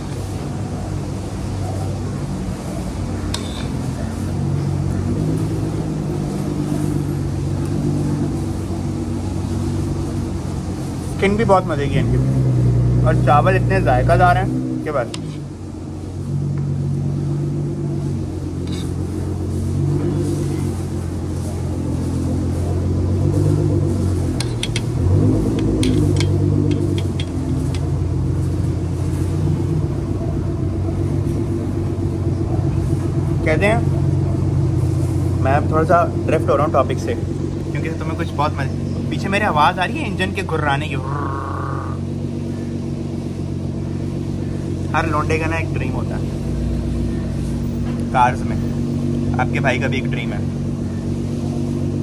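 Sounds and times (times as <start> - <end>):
car engine idling: 0.0 - 52.0.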